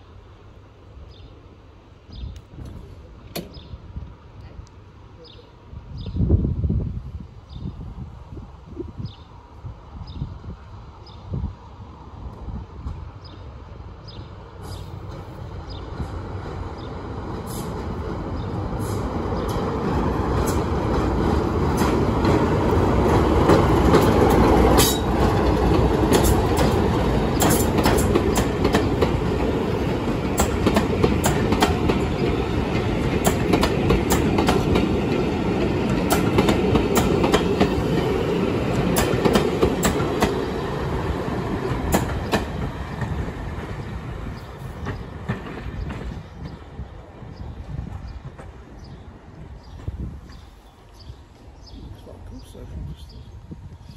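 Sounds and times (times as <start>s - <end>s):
train rolling rumble: 0.0s - 53.9s
train wheels clicking over rail joints: 14.6s - 40.5s, 41.4s - 46.9s.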